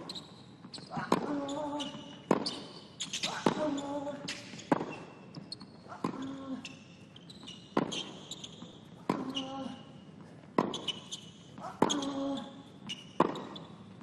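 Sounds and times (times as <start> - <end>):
racket striking tennis ball: 1.0 - 1.3, 2.2 - 3.6, 7.8 - 8.2, 10.6 - 11.0, 11.7 - 12.0, 13.2 - 13.6.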